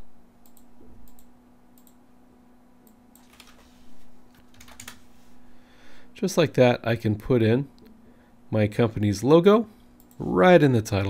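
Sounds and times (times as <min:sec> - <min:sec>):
computer mouse and keyboard clicks: 0:03.2 - 0:05.1.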